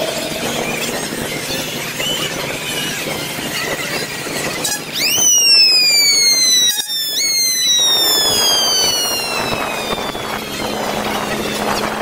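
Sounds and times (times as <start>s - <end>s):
siren wailing: 4.9s - 12.0s.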